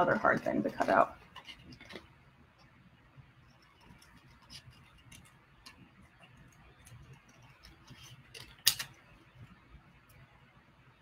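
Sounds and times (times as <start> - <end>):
scissors cutting cardboard: 3.6 - 5.4, 6.4 - 8.9.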